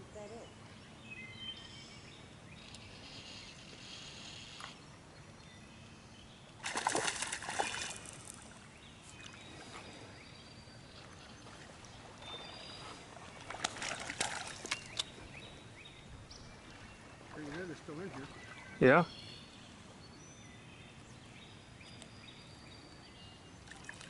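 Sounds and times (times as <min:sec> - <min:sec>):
fish splashing in water: 0:06.6 - 0:08.6, 0:11.6 - 0:15.2.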